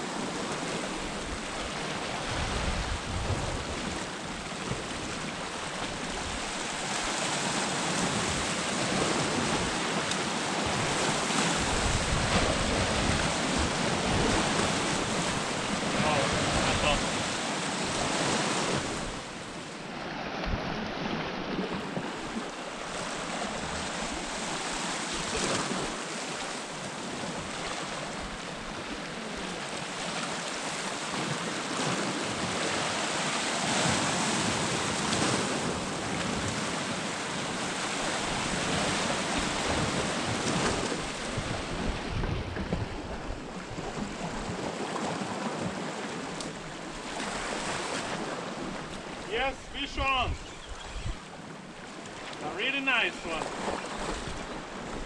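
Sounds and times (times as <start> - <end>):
surf breaking on rocks: 6.4 - 19.5, 29.2 - 50.4, 52.1 - 55.0.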